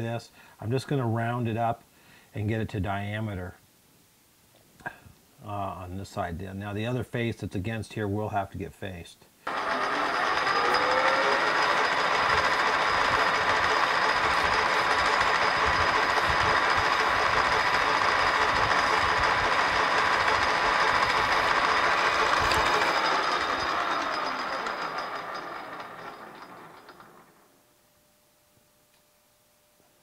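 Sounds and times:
file scraping spinning metal: 9.5 - 27.5
metal lathe whining: 9.5 - 27.5.

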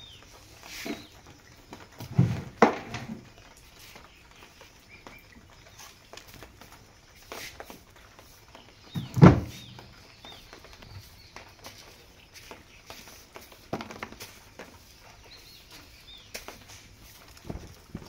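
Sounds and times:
broom sweeping concrete floor: 0.4 - 1.2, 7.2 - 7.9, 11.0 - 17.6.

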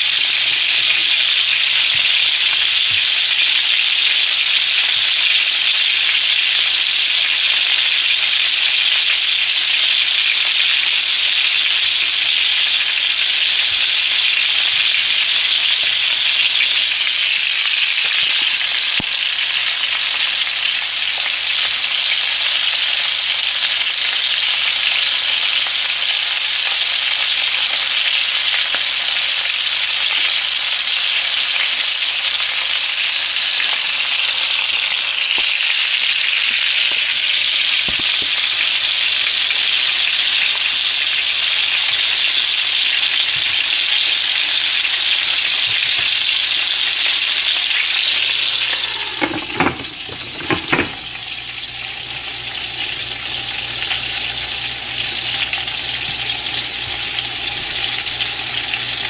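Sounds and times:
chicken frying in oil: 0.0 - 59.0
glass lid knocking on pan: 48.6 - 51.1.

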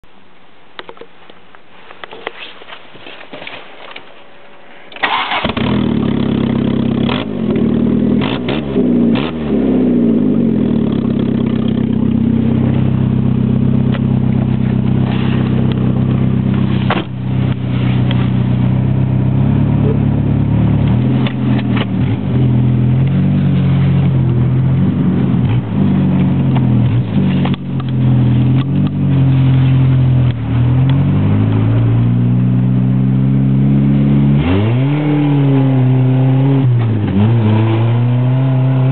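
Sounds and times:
car engine starting and revving: 4.9 - 38.9.

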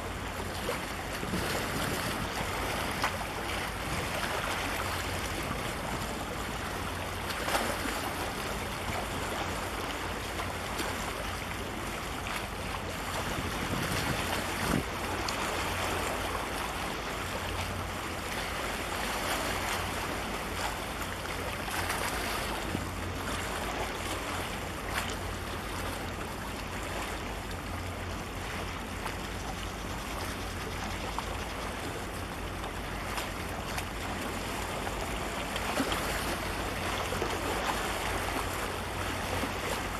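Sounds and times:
wind rumbling on microphone: 0.0 - 6.8, 12.9 - 17.0
choppy sea water: 0.0 - 39.9.

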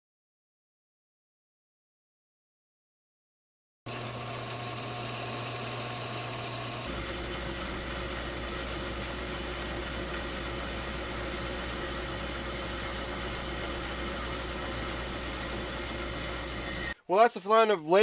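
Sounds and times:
lathe cutting metal: 3.9 - 17.0.

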